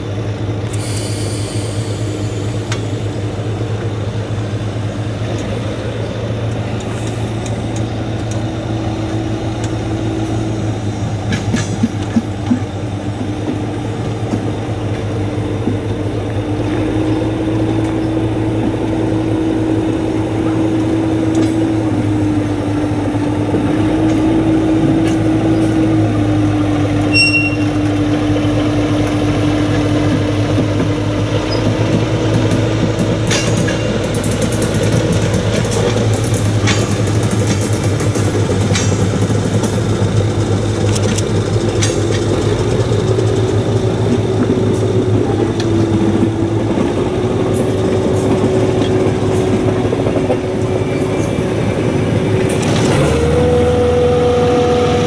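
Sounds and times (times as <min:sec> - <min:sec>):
diesel railcar engine drone: 0:00.0 - 0:55.0
wheels clicking over rail joints: 0:02.3 - 0:16.9, 0:26.8 - 0:54.0.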